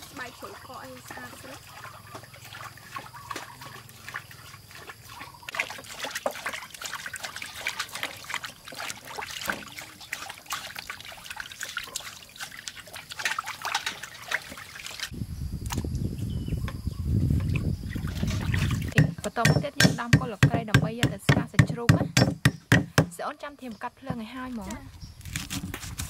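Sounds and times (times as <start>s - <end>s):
water splashing in a steel basin: 0.0s - 15.1s, 17.5s - 23.0s.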